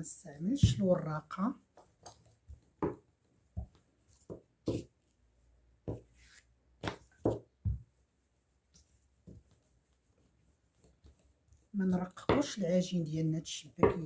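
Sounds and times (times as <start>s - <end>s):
rolling pin thudding on dough: 0.4s - 5.1s, 5.8s - 8.1s, 8.7s - 9.7s, 10.7s - 12.9s, 13.5s - 14.0s.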